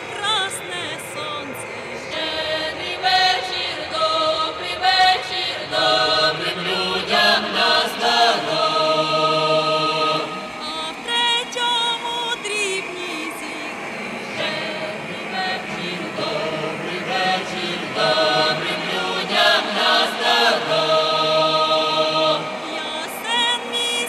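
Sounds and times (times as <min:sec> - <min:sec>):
voices singing chant-like song: 0:00.0 - 0:24.0.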